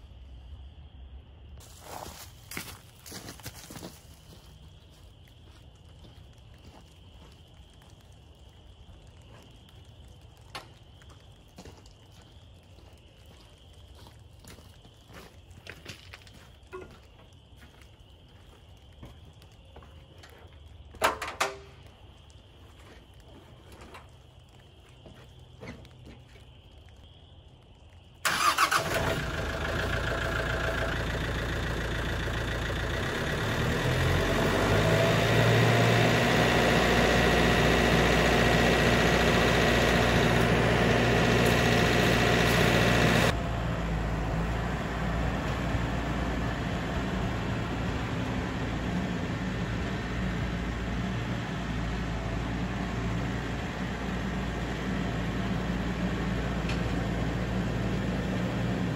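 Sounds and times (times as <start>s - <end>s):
tractor diesel engine running: 28.2s - 58.9s.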